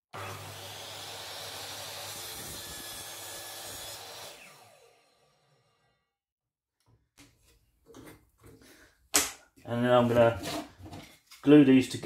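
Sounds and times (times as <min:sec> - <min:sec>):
mitre saw cutting wood: 0:00.1 - 0:06.0.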